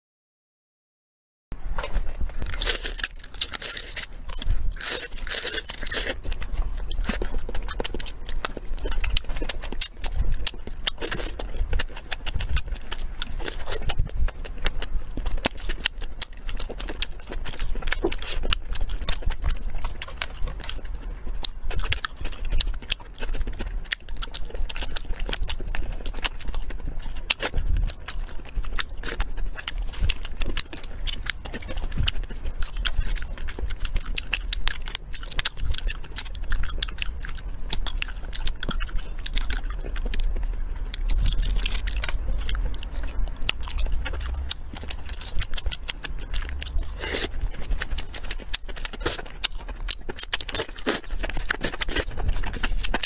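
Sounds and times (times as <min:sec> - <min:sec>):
chewing and crunching: 0:01.6 - 0:53.0.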